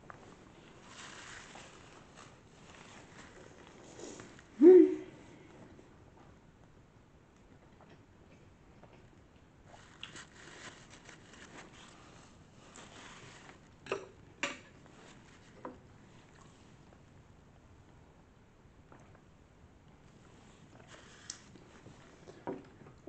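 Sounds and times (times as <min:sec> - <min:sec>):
paper napkin rustling: 0:00.2 - 0:04.5, 0:09.8 - 0:13.7.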